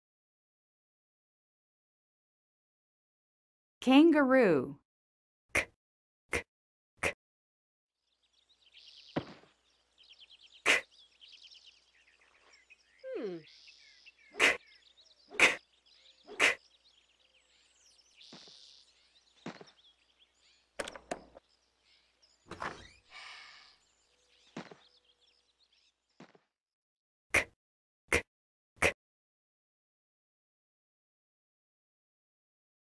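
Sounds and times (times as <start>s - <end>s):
birds chirping: 8.0s - 26.4s.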